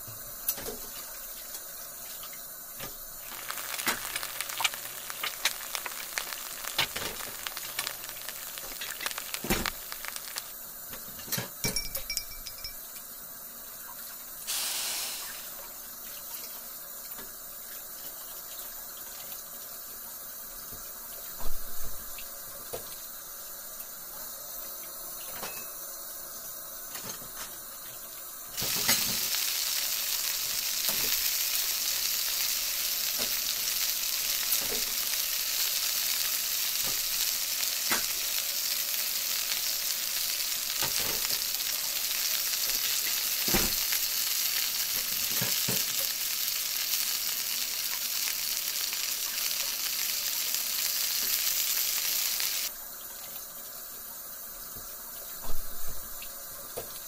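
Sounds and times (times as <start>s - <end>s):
food sizzling: 0.0s - 55.5s
crackles and pops: 2.3s - 11.4s, 28.6s - 52.7s.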